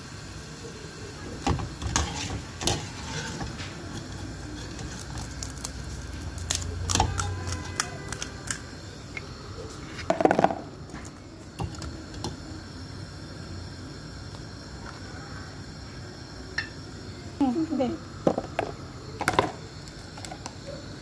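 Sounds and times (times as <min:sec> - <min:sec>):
metal spoon scraping paper plate: 0:01.8 - 0:06.3
crisp shell cracking: 0:02.0 - 0:08.7.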